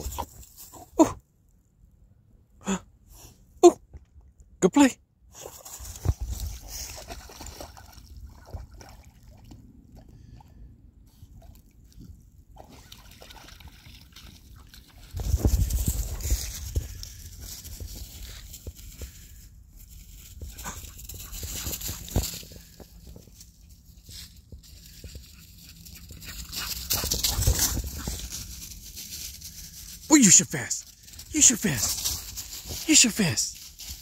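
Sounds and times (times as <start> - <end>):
wind and handling noise on microphone: 5.6 - 7.2, 14.9 - 29.8
dog splashing in water: 6.8 - 9.6, 12.6 - 15.1.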